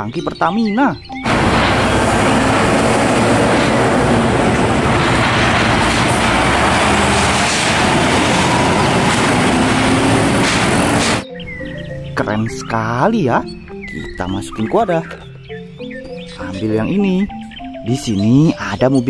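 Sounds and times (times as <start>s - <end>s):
truck diesel engine running: 1.2s - 11.2s
tyre and traffic noise: 1.2s - 12.2s.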